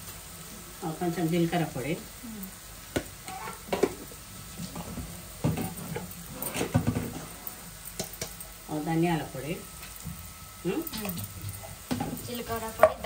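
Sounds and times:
low sizzle of frying: 0:00.0 - 0:13.0
spatula scraping a pan: 0:03.2 - 0:04.0.

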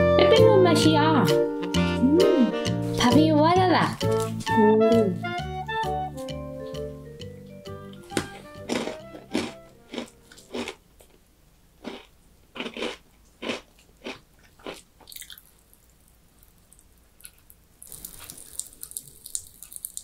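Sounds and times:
person chewing crunchy snack: 0:08.0 - 0:11.2, 0:11.8 - 0:15.9, 0:17.2 - 0:20.0.

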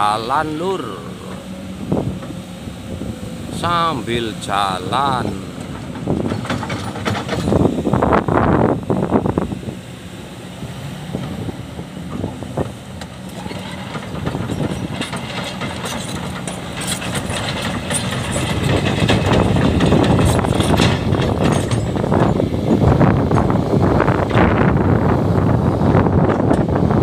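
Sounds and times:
excavator diesel engine running: 0:00.0 - 0:27.0
metal and stones clanking: 0:05.0 - 0:07.7, 0:13.2 - 0:22.4.

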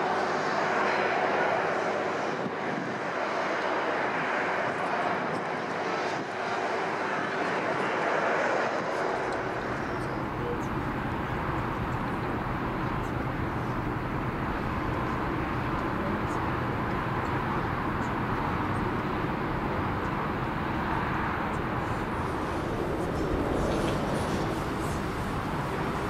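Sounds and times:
propeller aircraft engines running: 0:00.0 - 0:26.0.

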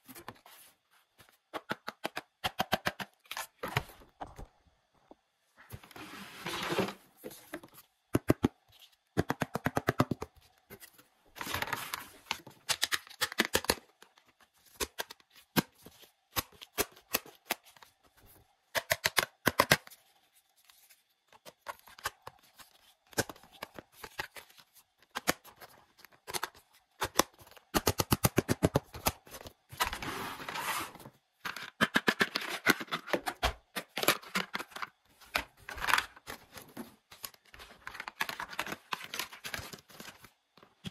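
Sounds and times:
cardboard scraping and rustling: 0:05.8 - 0:07.6, 0:29.8 - 0:31.1.

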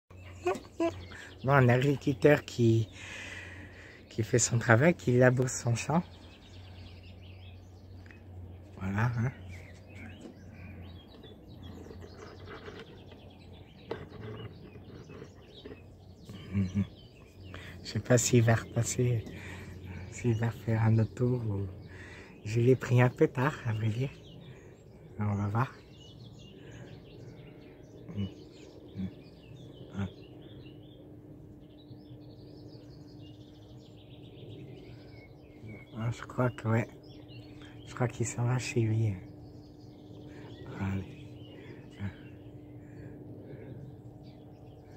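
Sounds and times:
distant tractor drone: 0:00.1 - 0:44.9
faint low hum: 0:00.1 - 0:44.9
small birds chirping: 0:00.1 - 0:44.9.

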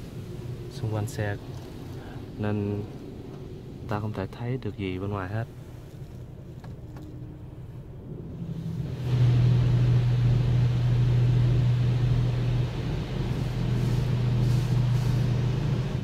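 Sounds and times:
low machine hum: 0:00.0 - 0:16.0
high-pressure water spray hissing: 0:13.2 - 0:15.5.

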